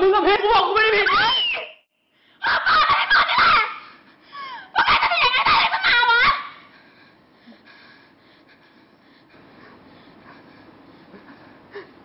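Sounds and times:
faint breathing: 6.7s - 12.0s.

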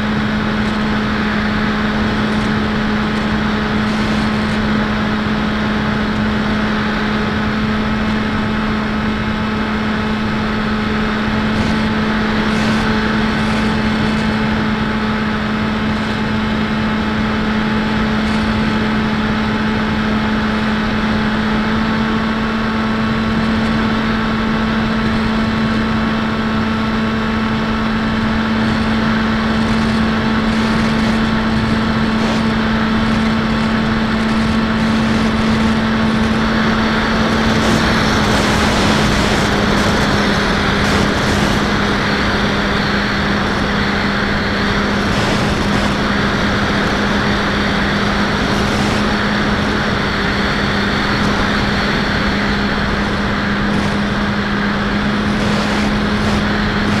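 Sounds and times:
electric motor and propeller droning: 0.0s - 57.0s
rush of air: 28.1s - 57.0s.

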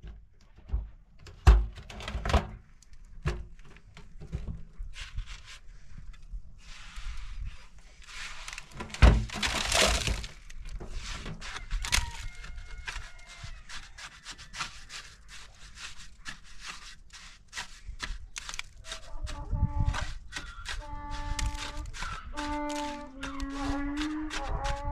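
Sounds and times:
trowel scraping and tapping mortar: 8.0s - 24.9s.

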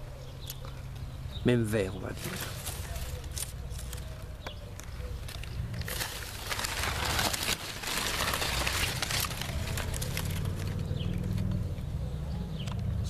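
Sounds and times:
palm fronds rustling and scraping: 2.0s - 11.5s.

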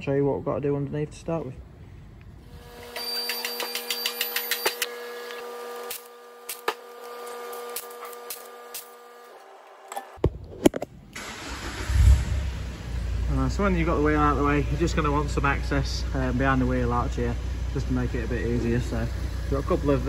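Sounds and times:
car lift motor and pump: 2.4s - 10.2s.

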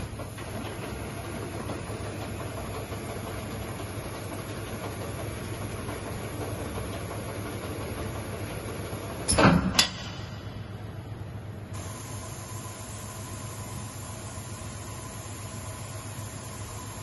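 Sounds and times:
loud clunk: 9.3s - 10.5s.

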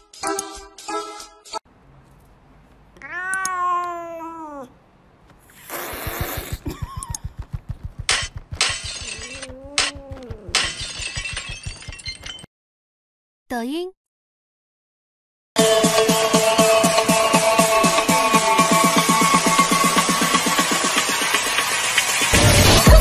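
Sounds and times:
cat meowing: 3.0s - 4.8s, 9.2s - 10.6s
fast low pulsing: 6.4s - 8.6s.

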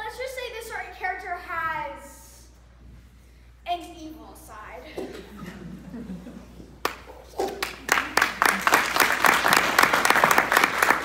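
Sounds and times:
audience applause: 6.8s - 11.0s.

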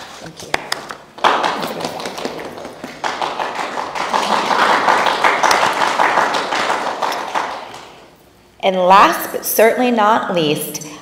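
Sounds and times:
people clapping: 0.4s - 8.1s.

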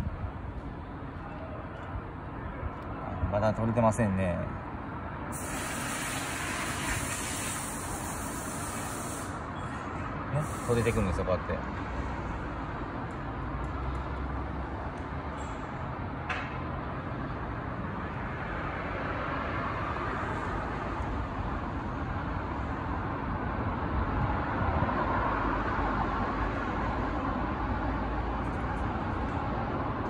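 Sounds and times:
road traffic noise: 0.0s - 30.0s.

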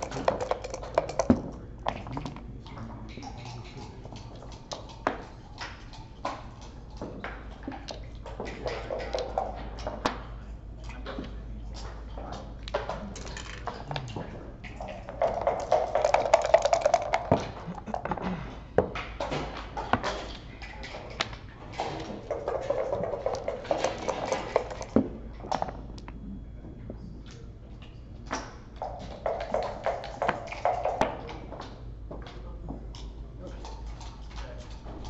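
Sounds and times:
checkers clacking on wooden board: 0.0s - 1.5s, 15.2s - 18.2s
dice rattling in cup: 0.0s - 1.5s, 15.2s - 18.1s.

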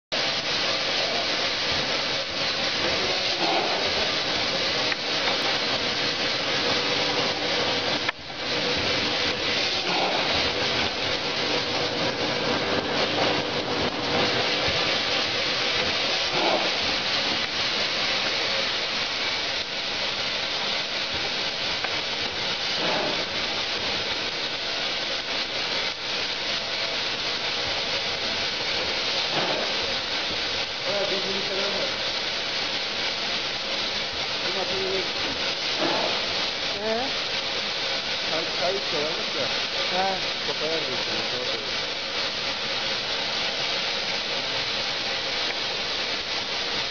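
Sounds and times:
packaging machine hissing: 0.2s - 32.7s, 33.4s - 37.2s.

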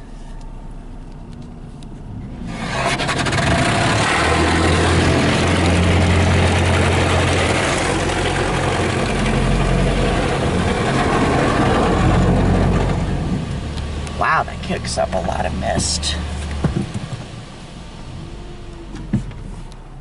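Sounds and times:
low steady hum: 0.0s - 2.7s.

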